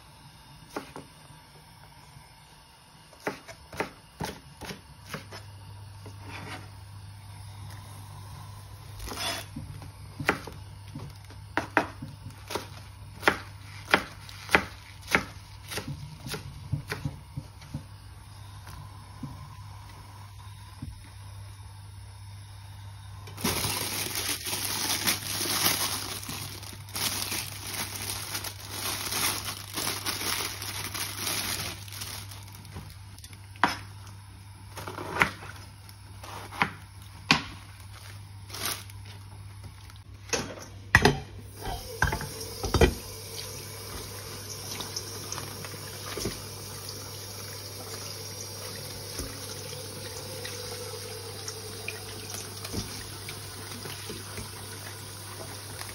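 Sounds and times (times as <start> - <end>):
tap water running into colander: 41.5 - 55.9.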